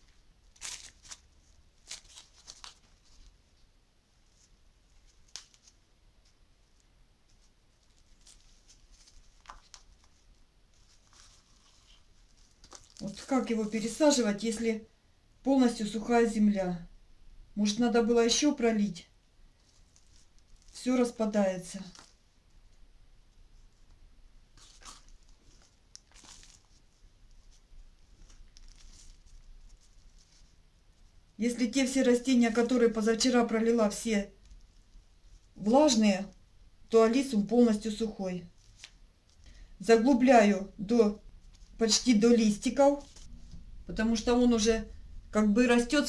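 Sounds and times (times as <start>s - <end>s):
plastic cup and soil rustling: 6.7s - 14.2s, 19.6s - 22.2s, 24.5s - 31.1s, 41.4s - 43.6s.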